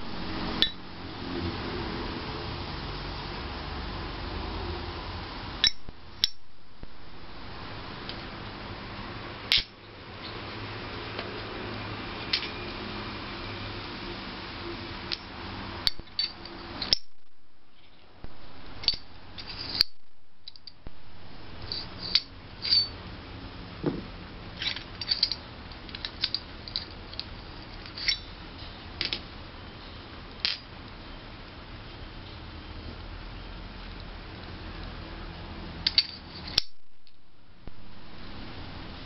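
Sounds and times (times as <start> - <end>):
steel clinks and knocks: 15.9 - 17.2, 21.7 - 23.0.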